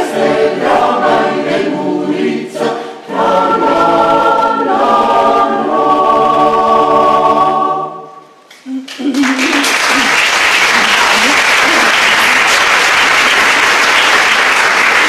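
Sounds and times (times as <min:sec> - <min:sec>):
mixed choir singing: 0:00.0 - 0:08.4.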